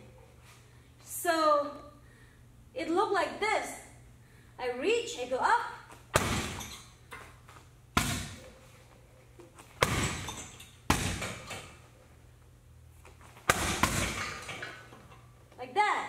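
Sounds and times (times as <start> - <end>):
kicks thudding on punching bag: 6.1 - 6.7, 8.0 - 8.4, 9.8 - 11.5, 13.4 - 14.5.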